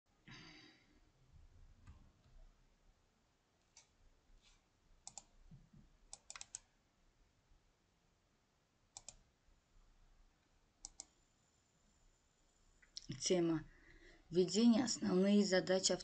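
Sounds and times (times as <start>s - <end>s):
faint computer clicks: 5.0s - 5.3s, 6.1s - 6.7s, 9.0s - 9.2s, 10.8s - 11.2s.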